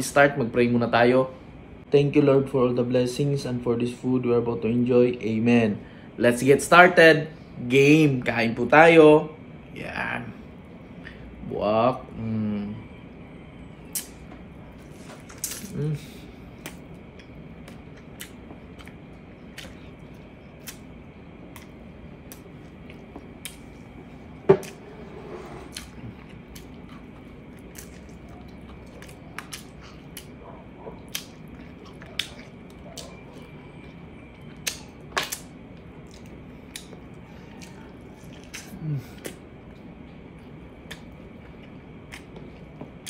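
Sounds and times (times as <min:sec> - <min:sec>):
faint steady hum: 0:00.0 - 0:43.0
lip smacks while chewing: 0:16.6 - 0:20.9, 0:21.5 - 0:23.8, 0:25.7 - 0:43.0.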